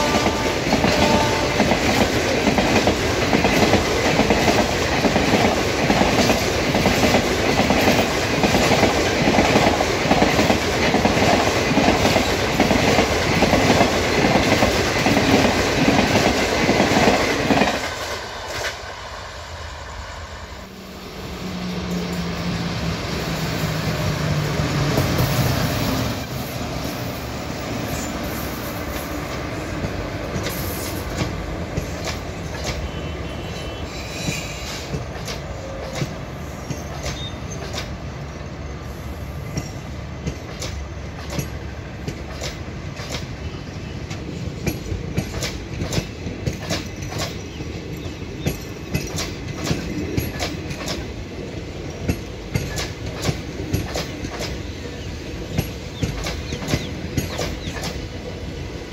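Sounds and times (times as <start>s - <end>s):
electric locomotive passing: 0.0s - 58.9s
train coaches rumbling past: 0.0s - 58.9s
wheels clacking over rail joints: 34.4s - 38.1s, 39.5s - 58.4s.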